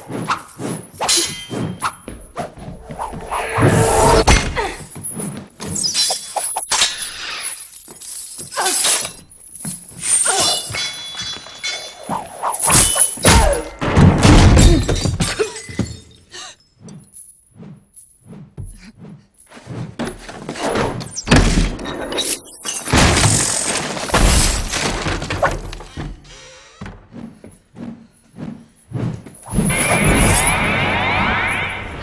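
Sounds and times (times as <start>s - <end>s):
things smashing and shattering: 21.3s - 25.9s.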